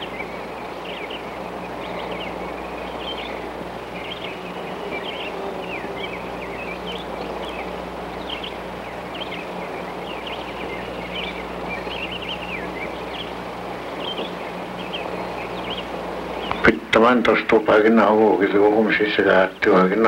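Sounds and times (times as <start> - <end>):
low hum: 0.0 - 19.0
background hiss: 0.0 - 20.0
birds chirping: 0.0 - 20.0.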